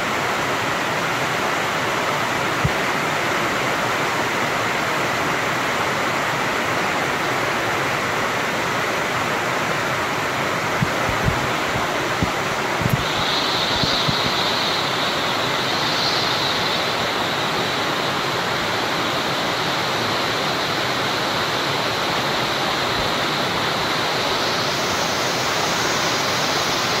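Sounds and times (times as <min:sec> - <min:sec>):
rain hissing: 0:07.9 - 0:27.0.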